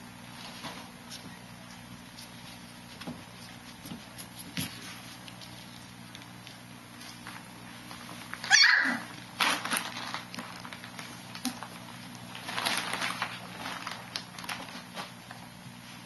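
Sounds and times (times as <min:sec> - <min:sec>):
rustling and scuffling: 0:00.2 - 0:08.7, 0:09.3 - 0:16.0
dog yelping: 0:08.4 - 0:09.1.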